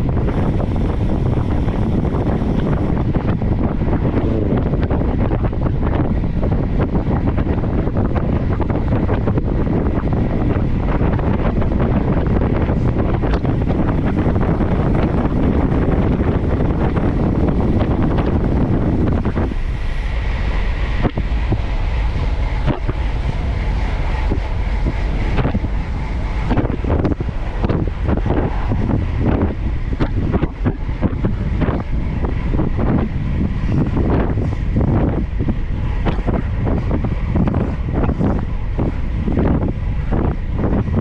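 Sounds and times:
wind buffeting microphone: 0.0 - 41.0
faint high whine: 12.8 - 36.5.

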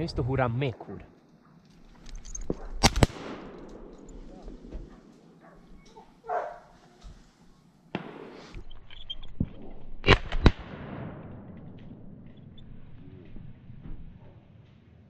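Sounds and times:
shotgun shots: 2.7 - 4.6, 7.9 - 8.6, 10.0 - 12.1.

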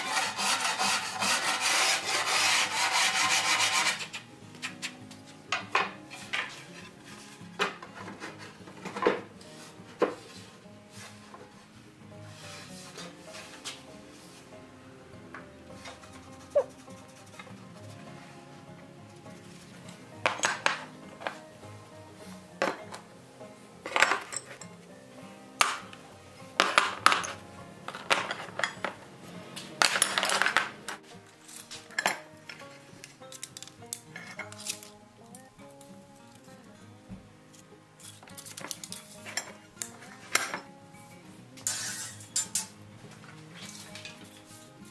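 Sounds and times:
background music: 0.0 - 44.9
steel irons clattering on wood: 5.5 - 6.9, 7.6 - 9.3, 20.2 - 21.4, 22.6 - 23.1, 23.8 - 24.8, 25.6 - 26.0, 26.6 - 29.0, 29.6 - 35.4, 38.0 - 40.7, 41.6 - 44.5.

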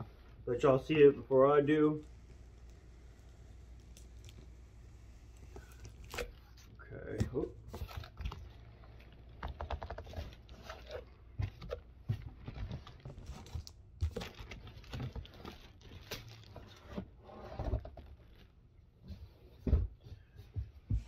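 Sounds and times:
cardboard rustling and crinkling: 4.2 - 18.6.

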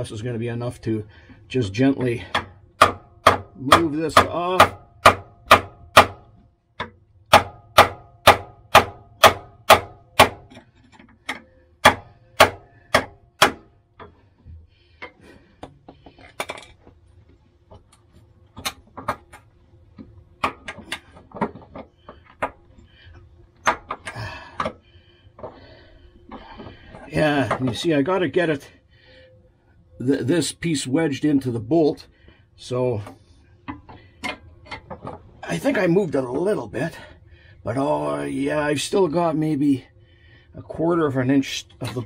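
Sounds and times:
hammer striking chisel: 2.3 - 10.6, 11.3 - 13.7.

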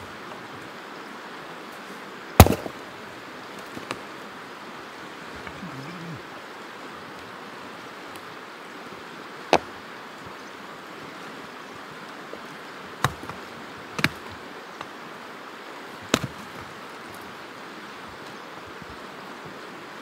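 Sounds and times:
river rushing: 0.0 - 20.0
axe splitting firewood: 2.4 - 2.8, 13.0 - 13.4, 16.1 - 16.6.

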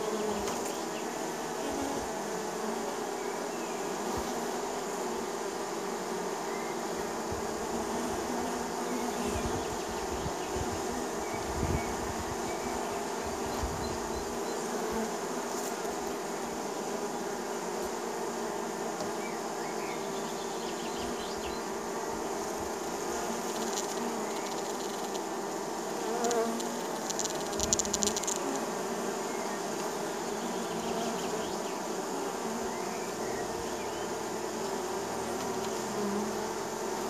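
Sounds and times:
honey bees buzzing: 0.0 - 37.0
rapid crackle of ticks: 23.5 - 25.3, 26.5 - 28.6.

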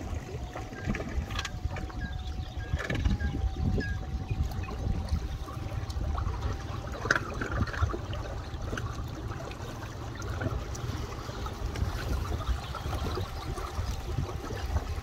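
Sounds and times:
water lapping at shore: 0.0 - 15.0
wind buffeting microphone: 0.0 - 15.0.

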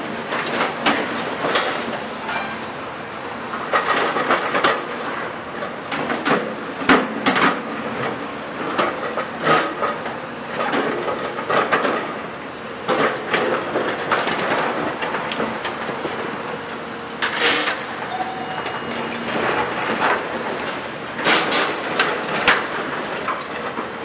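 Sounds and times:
steel creaking and screeching: 2.2 - 2.8, 17.2 - 19.2.

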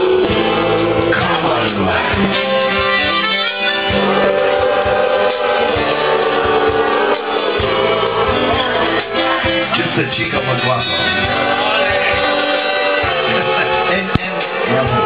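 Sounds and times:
accordion sustained chords: 0.0 - 15.0
drums: 0.0 - 15.0
guitars: 0.0 - 15.0.

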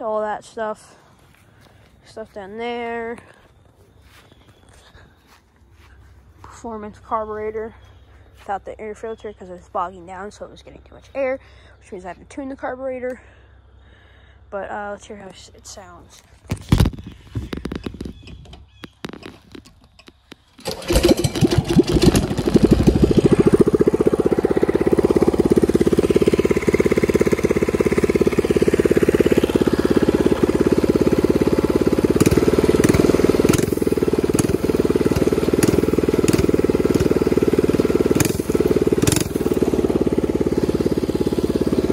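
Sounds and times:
mini bike engine running: 20.0 - 41.9.

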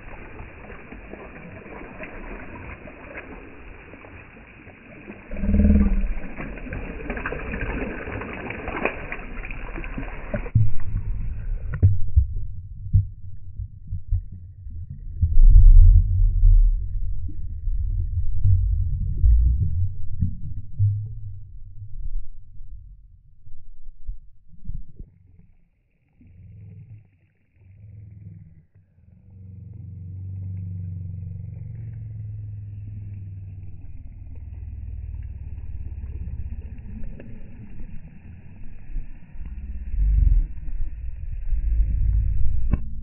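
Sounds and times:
water lapping and splashing: 0.0 - 12.2, 24.7 - 43.0
muffled underwater rumbles: 0.0 - 43.0.

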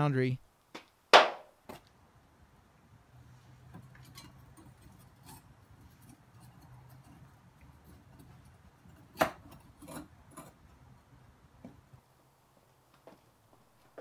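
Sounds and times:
low steady hum: 0.0 - 14.0
sharp knock: 1.1 - 1.5
metal tool scraping crucible: 3.8 - 10.7.

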